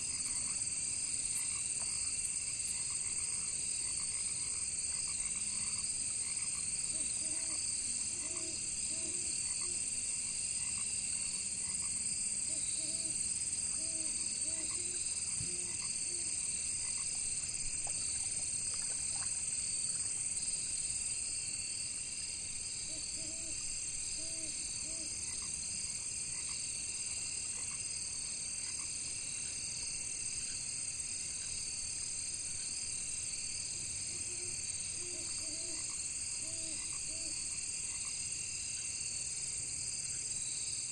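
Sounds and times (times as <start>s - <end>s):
crickets and insects chorus: 0.0s - 40.9s
frogs croaking: 1.3s - 21.6s, 22.4s - 29.6s, 33.7s - 39.1s.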